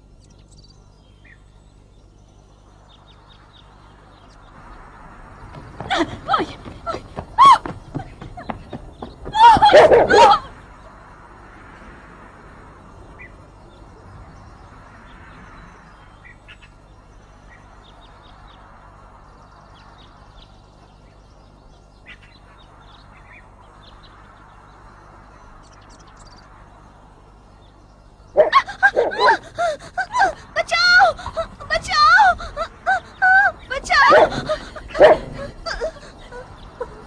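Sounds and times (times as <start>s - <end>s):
bird chirps: 0.0s - 11.0s, 13.0s - 29.4s
low steady hum: 0.0s - 37.0s.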